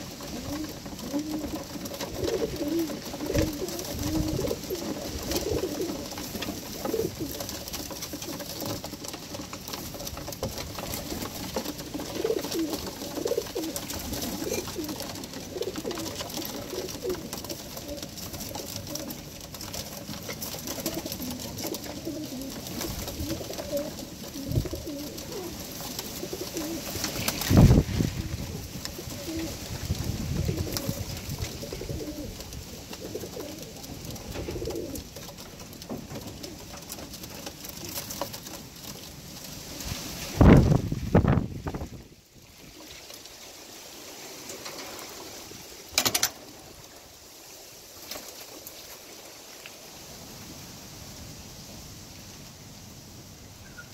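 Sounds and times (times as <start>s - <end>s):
pigeons cooing: 0.0s - 38.2s.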